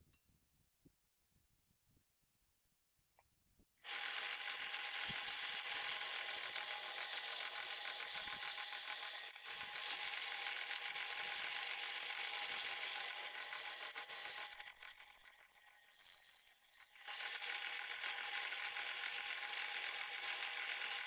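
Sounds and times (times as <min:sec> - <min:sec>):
drill press drilling into metal: 0:03.9 - 0:15.4.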